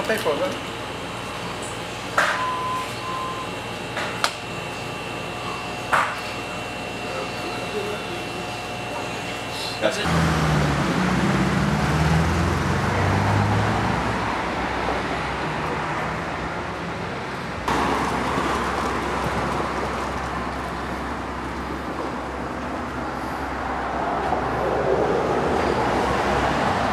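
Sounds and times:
passing cars: 0:10.0 - 0:26.9.

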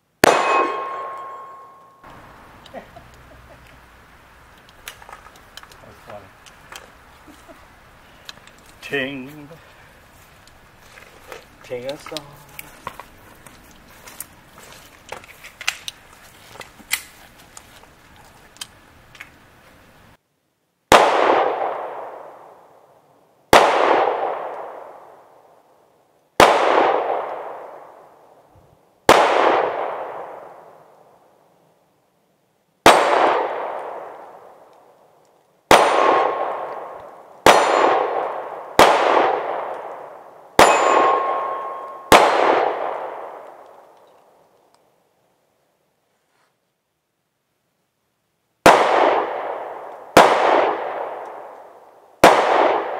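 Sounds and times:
pistol shots: 0:00.2 - 0:01.9, 0:20.9 - 0:22.4, 0:23.5 - 0:25.1, 0:26.4 - 0:28.0, 0:29.1 - 0:30.6, 0:32.8 - 0:34.5, 0:35.7 - 0:43.6, 0:48.6 - 0:51.6, 0:52.2 - 0:52.9
steel target ringing: 0:00.2 - 0:02.1, 0:40.6 - 0:42.2
faint clicks and handling noise: 0:04.5 - 0:19.9.

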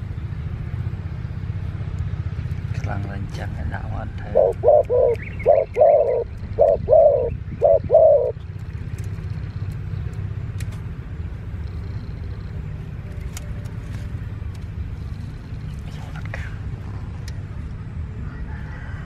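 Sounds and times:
dove cooing: 0:04.2 - 0:08.5.

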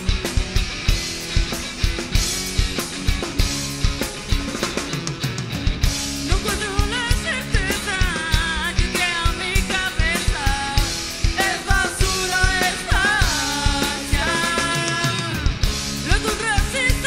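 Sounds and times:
drum kit: 0:00.0 - 0:17.0
electric guitars: 0:00.0 - 0:17.0.

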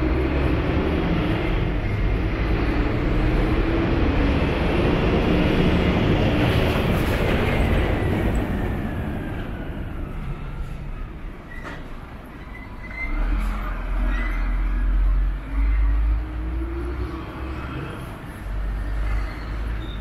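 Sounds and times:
garbage truck engine passing: 0:00.0 - 0:11.5.

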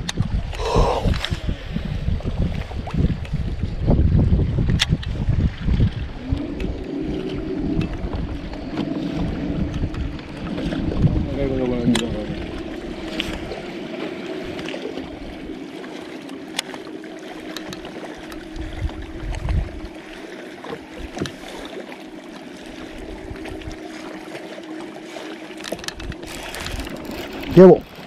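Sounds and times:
water lapping against boat hull: 0:00.0 - 0:28.0
electric motor hum: 0:05.9 - 0:28.0.

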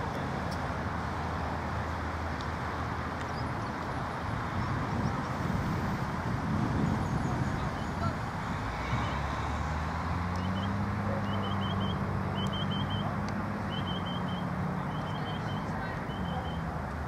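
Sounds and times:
low engine-like hum: 0:00.0 - 0:17.0
wind rumble on microphone: 0:03.2 - 0:10.9.

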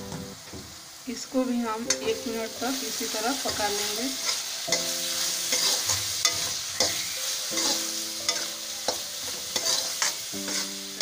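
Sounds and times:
food sizzling in oil: 0:00.0 - 0:11.0
spatula scraping pan: 0:03.5 - 0:11.0.

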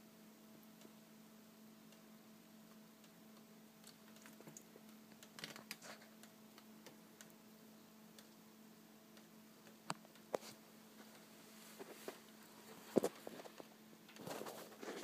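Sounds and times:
faint steady hum: 0:00.0 - 0:15.0
faint clicks: 0:08.1 - 0:08.4.

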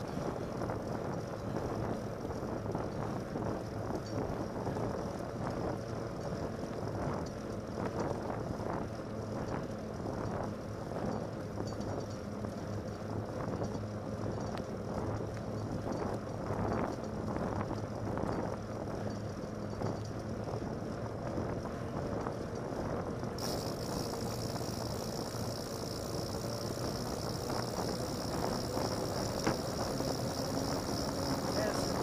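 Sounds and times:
wind rushing over microphone: 0:00.0 - 0:32.0
bike knocks and rattles: 0:23.4 - 0:32.0
tyre hum on wet pavement: 0:23.4 - 0:32.0.

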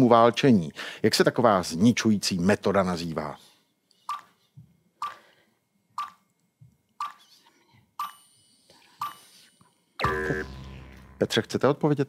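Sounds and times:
countdown timer ticking blips: 0:10.0 - 0:11.6.

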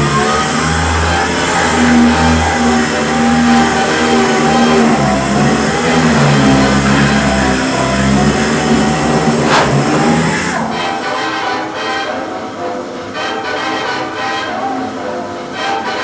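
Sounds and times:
music with stepping bass: 0:00.0 - 0:11.2
power sander grinding: 0:00.0 - 0:11.2.

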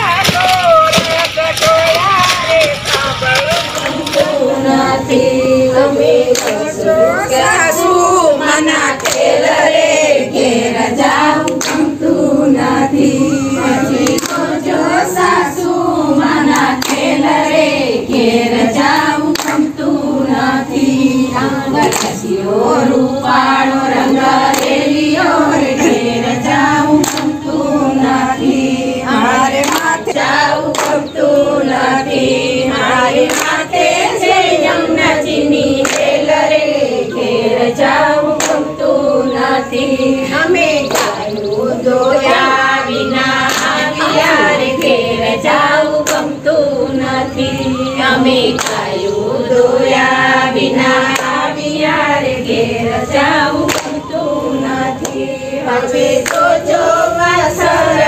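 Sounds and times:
hands clapping in time: 0:00.0 - 0:05.3, 0:06.0 - 0:06.7, 0:08.5 - 0:10.0, 0:11.1 - 0:12.0, 0:13.0 - 0:15.2, 0:16.2 - 0:17.3, 0:18.8 - 0:19.8, 0:21.4 - 0:22.8, 0:23.5 - 0:34.8, 0:35.8 - 0:46.6, 0:47.4 - 0:49.0, 0:51.0 - 0:51.5, 0:53.2 - 0:54.4, 0:55.0 - 0:56.6
women singing devotional song: 0:02.2 - 0:58.0.

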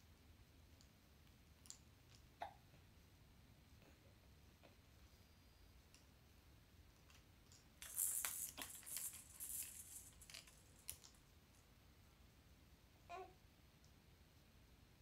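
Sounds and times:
plastic rattle toys rattling: 0:07.8 - 0:11.2.

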